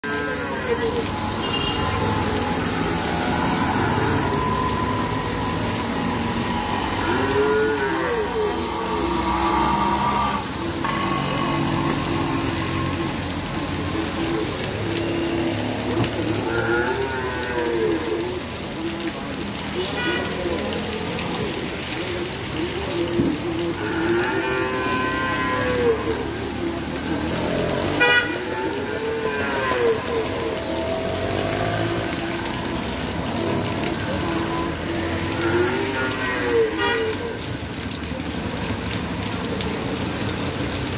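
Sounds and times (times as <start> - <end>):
steady rain hiss: 0.0 - 40.9
tyres swishing through water: 0.0 - 40.9
vehicle horn: 0.2 - 2.1, 19.8 - 20.4, 23.8 - 26.2, 27.8 - 30.0, 35.4 - 37.2
vehicle engines running: 20.3 - 36.4.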